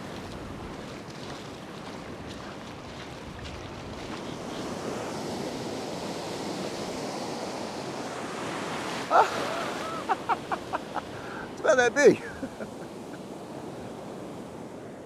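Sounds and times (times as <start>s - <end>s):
ocean surf breaking on sand: 0.0s - 15.0s.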